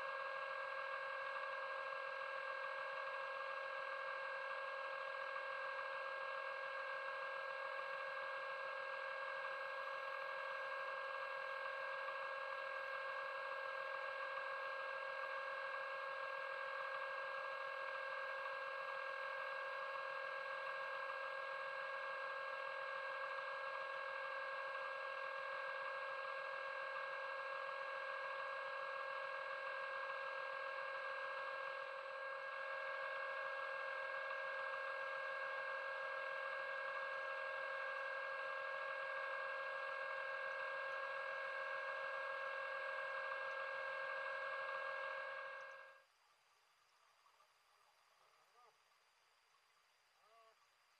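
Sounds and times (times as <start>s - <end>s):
underwater scooter motor whining: 30.1s - 45.9s.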